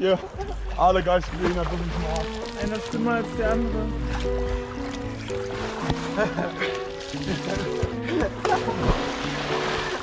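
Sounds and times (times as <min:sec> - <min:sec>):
background music sustained notes: 0:00.0 - 0:10.0
person splashing into pool: 0:05.0 - 0:10.0.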